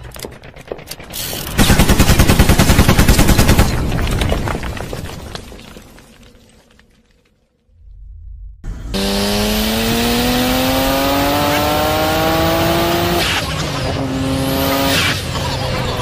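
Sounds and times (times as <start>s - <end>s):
vehicle engine accelerating: 8.6s - 16.0s.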